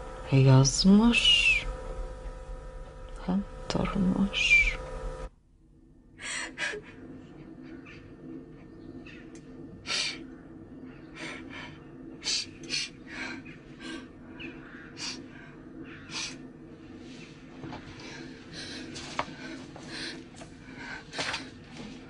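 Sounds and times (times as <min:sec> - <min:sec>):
faint steady hum: 0:00.0 - 0:22.0
woman sobbing: 0:06.2 - 0:08.1.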